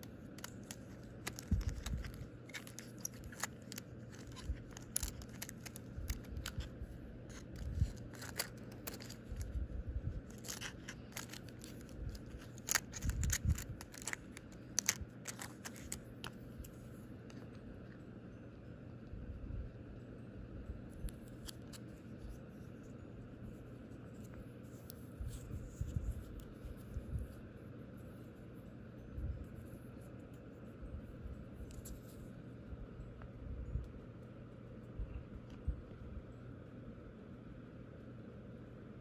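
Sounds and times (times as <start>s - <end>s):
plastic nail tips clicking: 0.3s - 6.7s, 10.3s - 16.4s.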